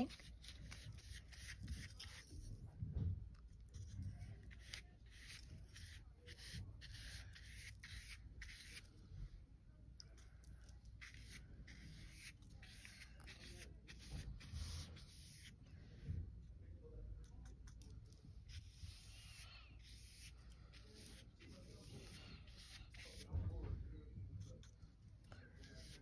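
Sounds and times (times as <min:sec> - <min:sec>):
brush rubbing on canvas: 0:04.5 - 0:08.9, 0:11.0 - 0:15.6, 0:18.5 - 0:23.4, 0:25.6 - 0:26.0.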